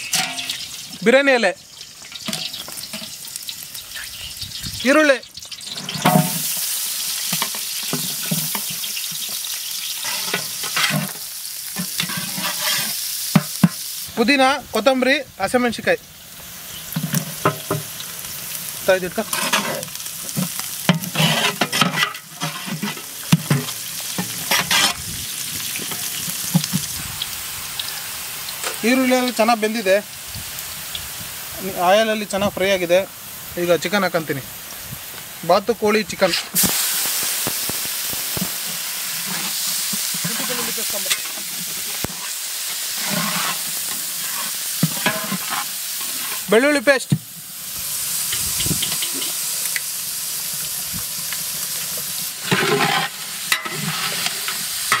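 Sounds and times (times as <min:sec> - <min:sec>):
metal ladle scraping a pot: 0:00.0 - 0:00.8, 0:07.3 - 0:11.2, 0:11.8 - 0:13.0, 0:19.3 - 0:19.8, 0:20.9 - 0:25.1, 0:39.2 - 0:46.5, 0:52.4 - 0:55.0
vegetables sizzling in hot oil: 0:00.0 - 0:55.0.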